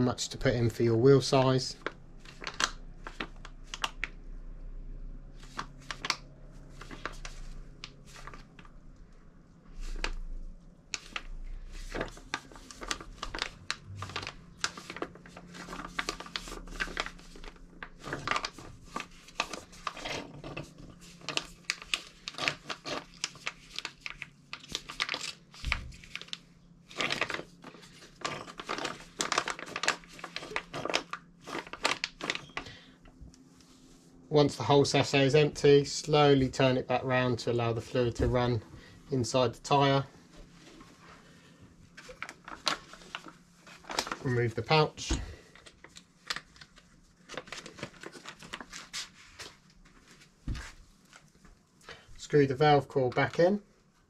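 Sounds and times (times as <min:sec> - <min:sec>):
plastic pouch crinkling: 0:01.7 - 0:04.2, 0:05.4 - 0:08.8, 0:10.9 - 0:32.8, 0:41.9 - 0:49.2.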